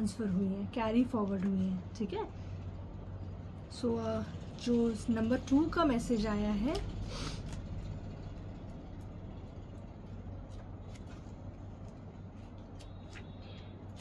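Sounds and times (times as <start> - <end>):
steady low hum: 0.0 - 14.0
cards rustling and clicking: 6.6 - 14.0.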